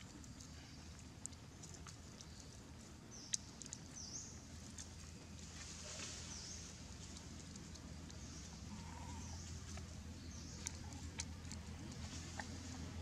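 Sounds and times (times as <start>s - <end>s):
low steady hum: 0.0s - 13.0s
rustles in dry leaves: 5.1s - 9.7s.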